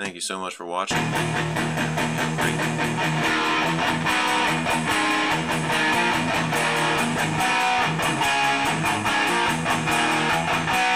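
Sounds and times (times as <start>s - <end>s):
instrumental music with guitar: 0.9s - 10.9s.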